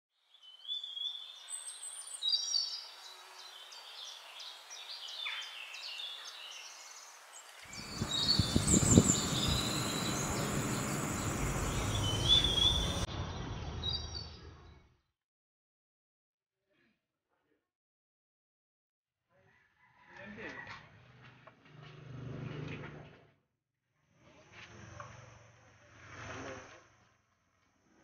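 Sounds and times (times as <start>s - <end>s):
birds chirping and whistling: 7.5s - 13.1s
steady rushing noise: 7.7s - 13.1s.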